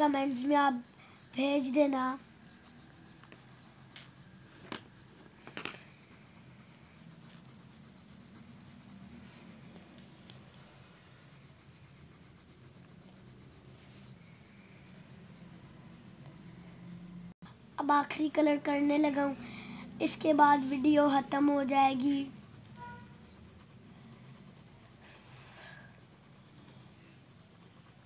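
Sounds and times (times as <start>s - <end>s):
coloured pencil scratching on paper: 0.0s - 28.0s.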